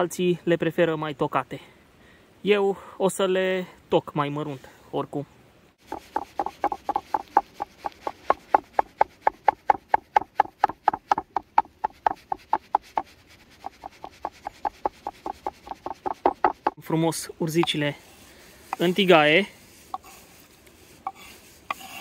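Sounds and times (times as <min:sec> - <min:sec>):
knife chopping on wooden board: 0:05.9 - 0:16.8.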